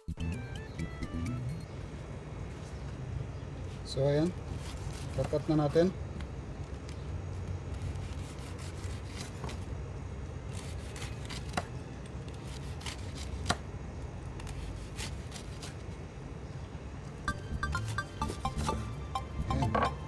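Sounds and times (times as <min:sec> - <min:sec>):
knife crunching crispy crust: 0:07.6 - 0:09.5, 0:10.4 - 0:13.6, 0:14.3 - 0:15.9.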